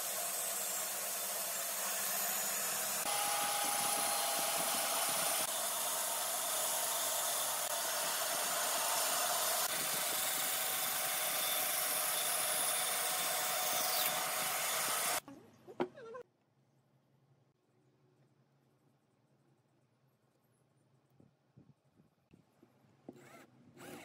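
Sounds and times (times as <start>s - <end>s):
band saw cutting wood: 0.0s - 15.2s.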